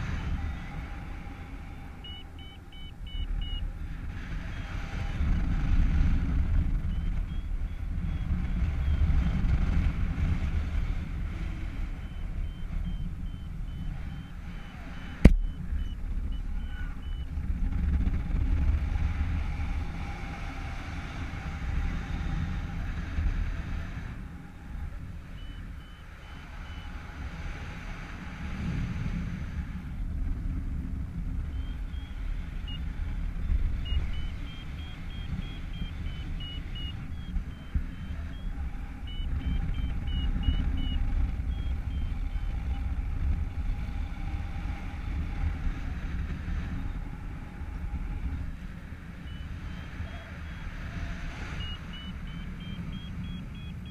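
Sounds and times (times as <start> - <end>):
wind buffeting microphone: 0.0 - 53.9
short high-pitched beeps: 2.0 - 3.7, 6.9 - 9.0, 12.0 - 17.3, 25.3 - 26.9, 33.8 - 42.4, 51.5 - 53.9.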